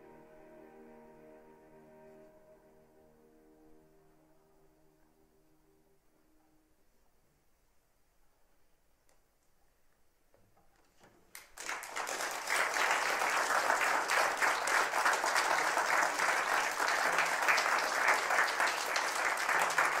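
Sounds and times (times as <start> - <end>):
audience applauding: 11.3 - 20.0.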